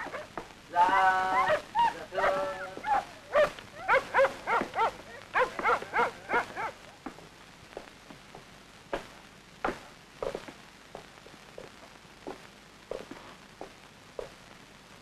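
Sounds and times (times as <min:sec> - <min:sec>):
dog barking: 0:00.0 - 0:00.3, 0:01.3 - 0:06.8.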